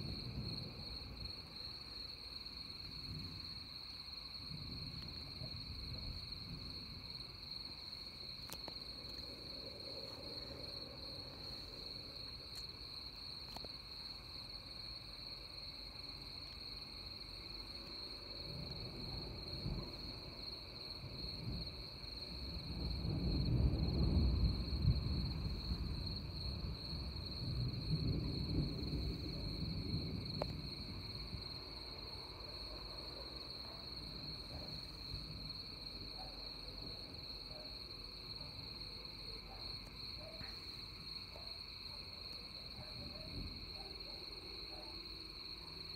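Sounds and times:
thunder rumble: 0:00.0 - 0:12.4, 0:18.2 - 0:37.4, 0:42.6 - 0:44.7
crickets chirping: 0:00.0 - 0:45.9.

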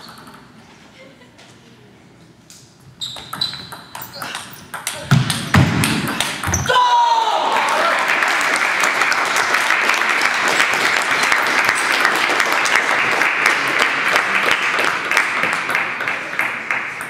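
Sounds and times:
spectators applauding: 0:07.1 - 0:17.0.

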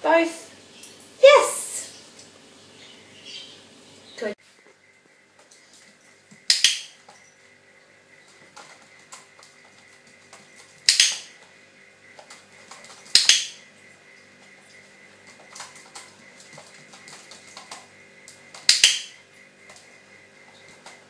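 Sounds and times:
dog-training clicker clicking: 0:06.5 - 0:06.9, 0:10.9 - 0:11.3, 0:13.2 - 0:13.6, 0:18.7 - 0:19.2.

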